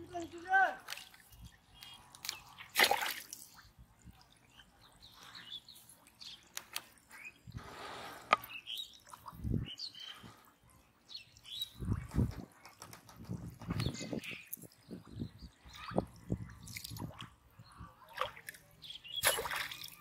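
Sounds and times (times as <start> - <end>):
water splashing and dripping: 0.2 - 9.7, 11.3 - 20.0
faint bird chirps: 13.7 - 20.0.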